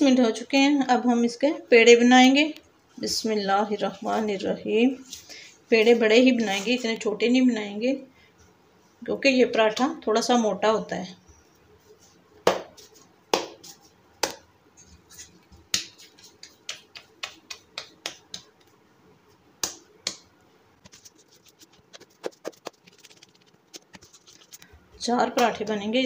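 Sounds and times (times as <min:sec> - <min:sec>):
hands slapping dough: 0:12.4 - 0:14.5, 0:15.2 - 0:18.8, 0:19.6 - 0:24.6.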